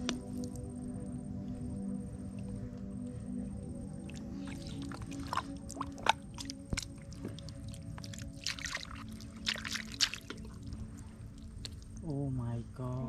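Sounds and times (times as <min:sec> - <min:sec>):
wet mud squelching: 0:03.6 - 0:12.1.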